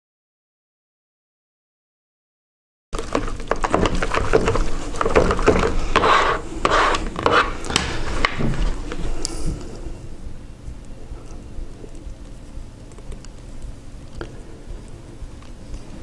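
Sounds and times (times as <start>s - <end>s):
spatula scraping wet mix in bucket: 3.0s - 9.7s.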